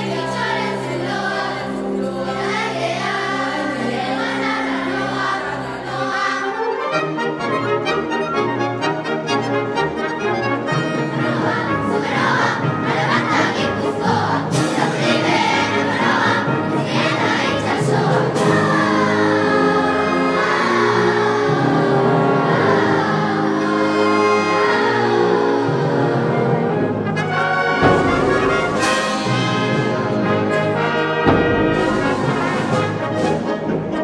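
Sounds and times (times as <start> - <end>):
children's choir singing: 0.0 - 34.0
wind band playing: 0.0 - 34.0
trumpets and trombones: 6.5 - 34.0
drum stroke: 27.8 - 33.4.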